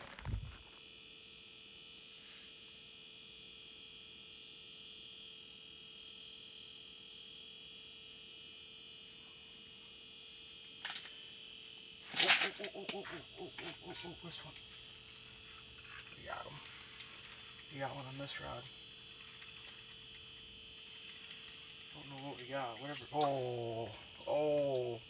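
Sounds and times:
high-pitched whine: 0:12.1 - 0:25.0.

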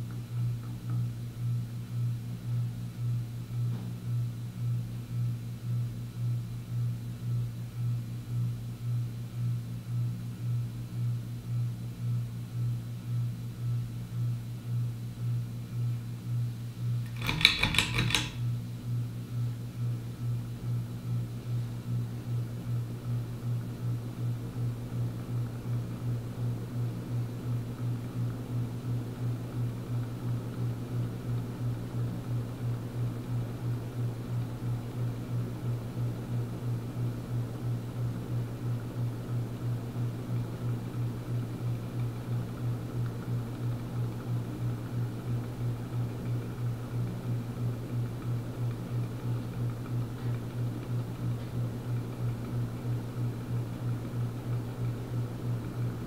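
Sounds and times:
ceiling fan motor humming: 0:00.0 - 0:56.0.

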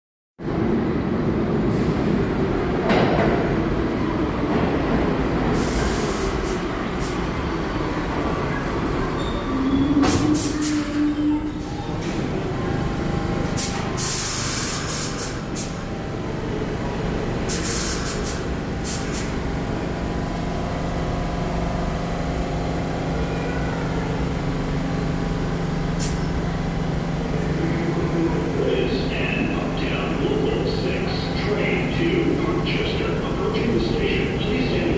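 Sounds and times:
subway train electrical hum: 0:00.4 - 0:34.9
air release hisses: 0:13.6 - 0:15.7.

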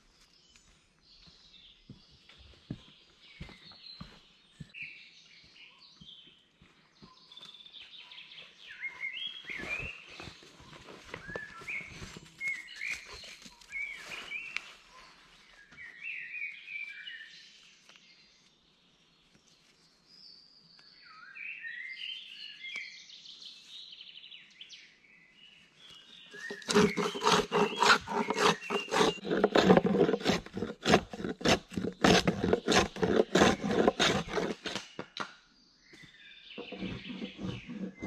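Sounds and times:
birds chirping and singing: 0:00.1 - 0:18.3, 0:20.1 - 0:38.0
tarp rustling on dry leaves: 0:09.5 - 0:15.5.

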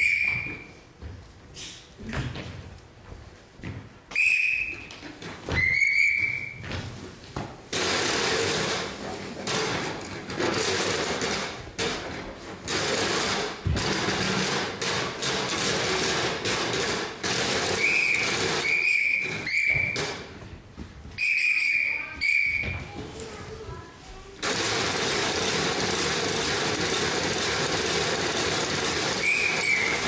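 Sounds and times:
high whistle blasts: 0:00.0 - 0:00.7, 0:04.1 - 0:04.9, 0:05.6 - 0:06.6, 0:17.8 - 0:20.2, 0:21.2 - 0:22.8, 0:29.1 - 0:30.0
loud dense rattling: 0:24.4 - 0:30.0.

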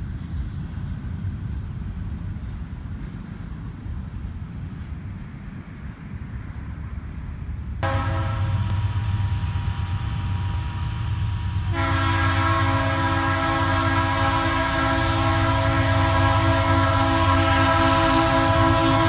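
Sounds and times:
locomotive engine rumble: 0:00.0 - 0:19.0
locomotive air horn blasts: 0:07.8 - 0:19.0.

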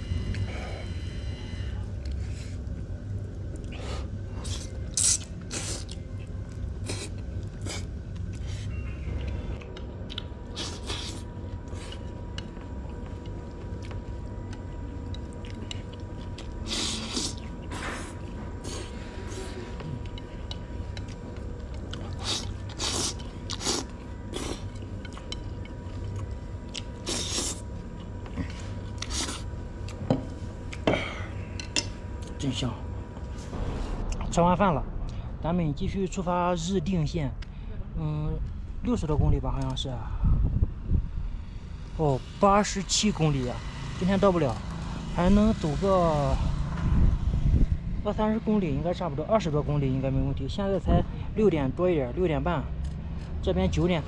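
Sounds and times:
steady low hum: 0:00.0 - 0:54.0
chewing: 0:09.1 - 0:30.0.

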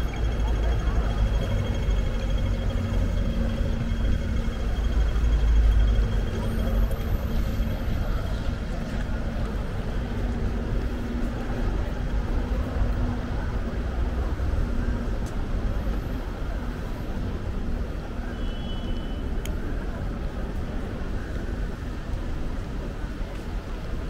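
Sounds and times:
traffic rumble: 0:00.0 - 0:24.0.

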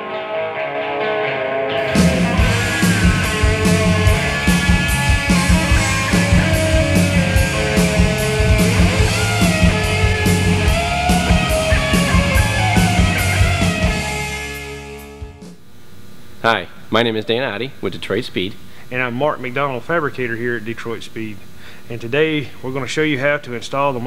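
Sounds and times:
rock guitar: 0:00.0 - 0:15.6
driving drum beat: 0:01.9 - 0:15.6.

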